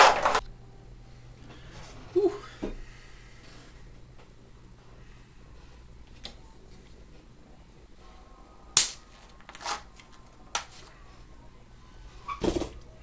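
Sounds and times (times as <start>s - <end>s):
can being punctured pop: 8.8s - 9.0s.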